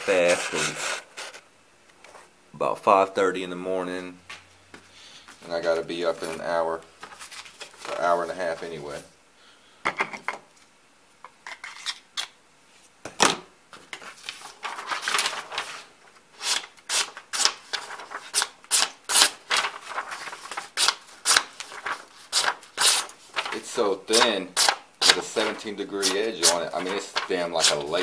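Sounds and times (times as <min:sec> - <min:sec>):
knife slicing paper: 0:14.4 - 0:28.0.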